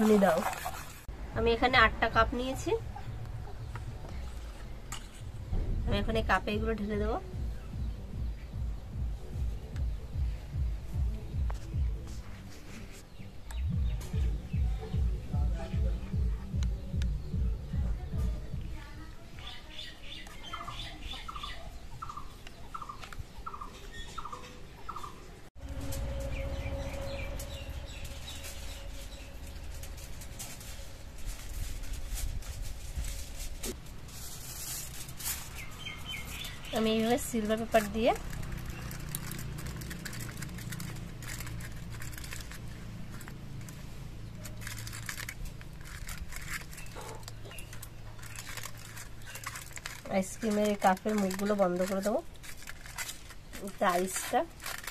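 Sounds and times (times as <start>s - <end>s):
bird chirping: 13.0s - 31.0s, 35.4s - 52.0s
aluminium foil crinkling: 25.6s - 54.9s
scissors cutting foil: 25.7s - 54.9s.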